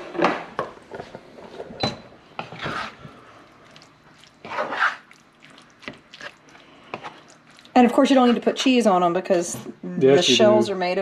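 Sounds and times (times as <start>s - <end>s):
spatula scraping meat in skillet: 2.4s - 3.3s, 4.2s - 8.5s.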